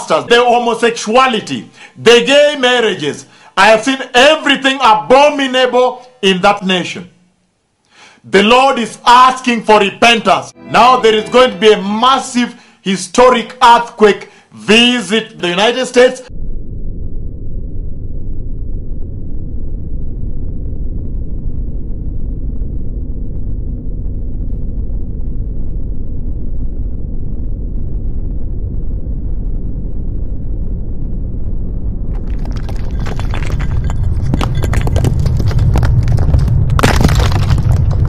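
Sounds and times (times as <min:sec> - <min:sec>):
earthquake rumble: 0:16.3 - 0:38.0.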